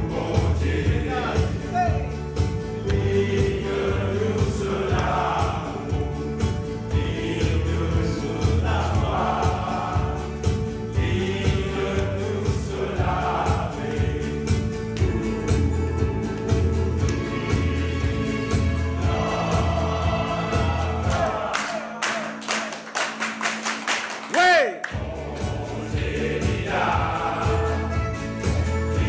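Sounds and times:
men singing gospel in chorus: 0:00.0 - 0:22.6, 0:24.9 - 0:29.0
guitar accompaniment: 0:00.0 - 0:24.4, 0:25.0 - 0:29.0
hand claps: 0:01.6 - 0:03.6, 0:04.4 - 0:07.7, 0:11.5 - 0:12.8, 0:13.4 - 0:18.8, 0:20.6 - 0:25.7.

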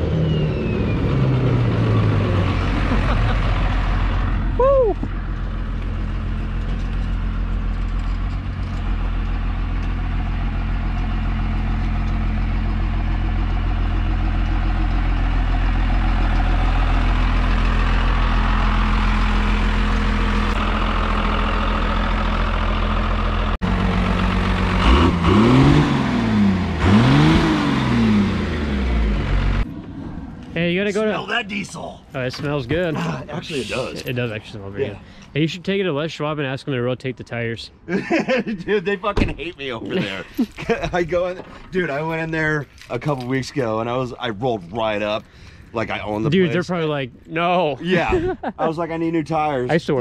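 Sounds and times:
diesel truck engine revving: 0:00.0 - 0:30.9.

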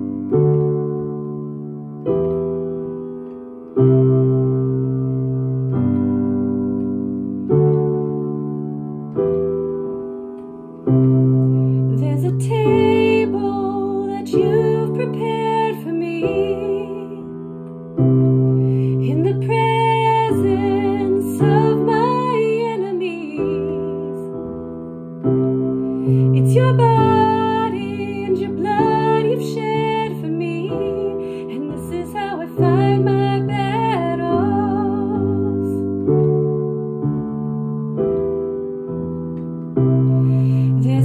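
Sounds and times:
piano playing slow chords: 0:00.0 - 0:41.0
woman singing with vibrato: 0:19.0 - 0:24.2, 0:26.4 - 0:35.8.

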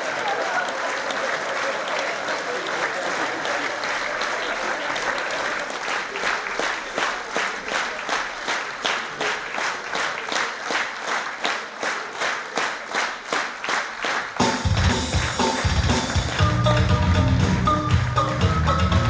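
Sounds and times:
audience clapping in unison: 0:00.0 - 0:19.0
music with heavy bass: 0:14.4 - 0:19.0.

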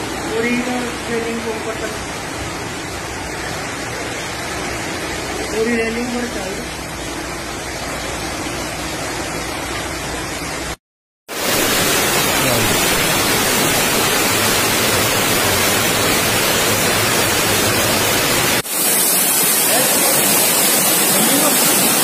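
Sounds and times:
floodwater running through street: 0:00.0 - 0:22.0
water cascading down stairs: 0:00.0 - 0:22.0.

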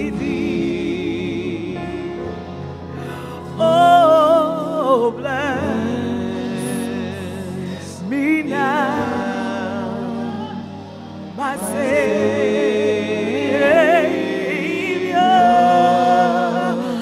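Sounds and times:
electric keyboard: 0:00.0 - 0:17.0
woman singing gospel: 0:03.4 - 0:17.0.

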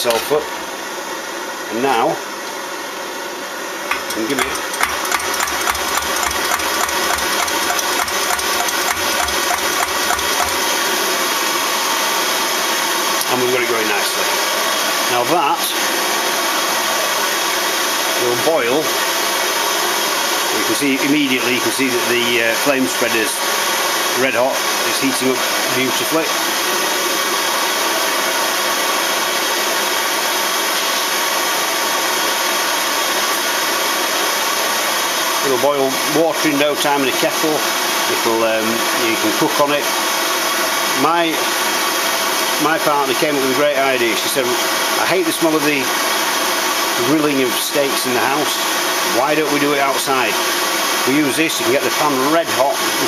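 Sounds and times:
stove burner roar: 0:00.0 - 0:01.2, 0:03.4 - 0:15.0, 0:20.1 - 0:28.1
pump rhythmic clicks: 0:03.9 - 0:10.9.

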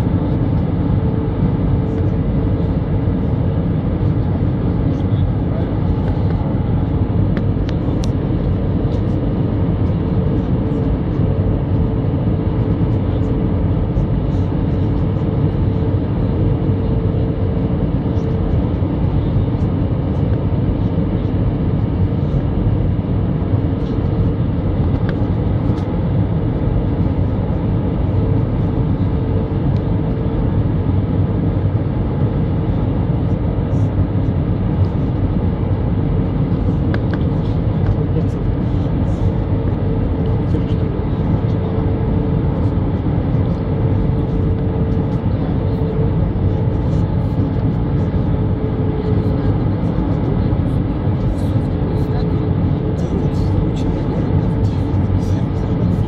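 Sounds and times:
aircraft engine rumble in cabin: 0:00.0 - 0:56.0
steady hum: 0:00.0 - 0:56.0.

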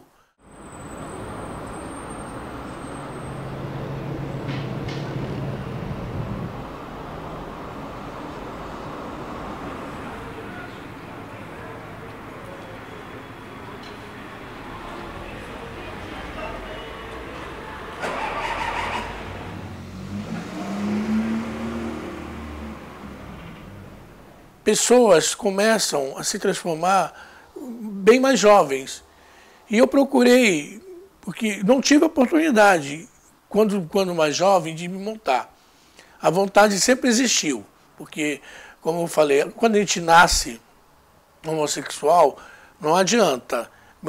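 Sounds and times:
heavy vehicle engine drone: 0:00.4 - 0:24.6
passing cars: 0:00.4 - 0:24.7.

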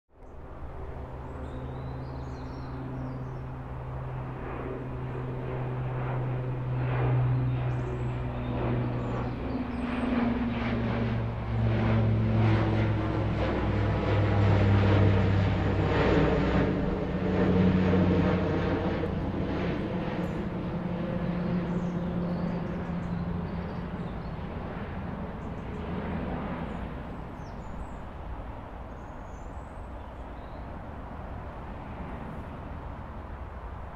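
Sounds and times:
engine passing by: 0:00.9 - 0:28.0.

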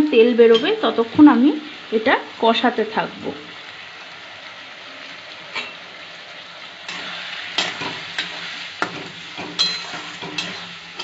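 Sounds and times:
food sizzling in oil: 0:00.0 - 0:11.0
metal spatula scraping pan: 0:06.9 - 0:11.0.

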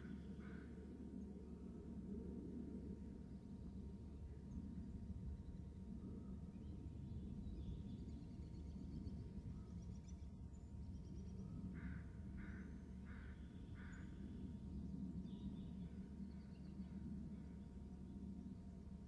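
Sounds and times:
steady low hum: 0:00.0 - 0:19.0
crow cawing: 0:11.8 - 0:14.1.

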